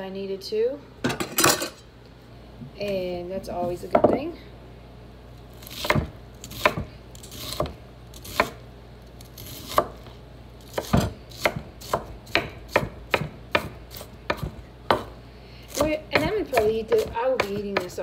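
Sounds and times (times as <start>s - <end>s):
knife chopping on wooden board: 5.7s - 8.6s, 9.4s - 10.1s, 10.7s - 18.0s.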